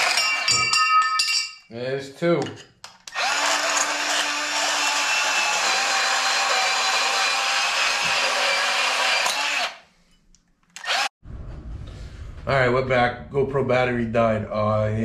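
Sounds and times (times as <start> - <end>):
band saw cutting metal: 3.1 - 9.8.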